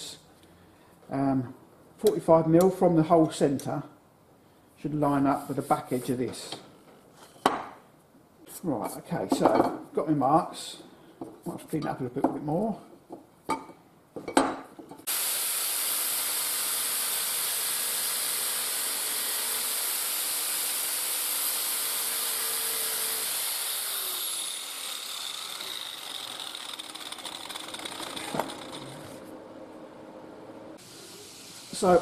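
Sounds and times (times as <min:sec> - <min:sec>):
angle grinder grinding steel: 0:15.1 - 0:29.4
grinder spinning down whine: 0:15.1 - 0:29.4.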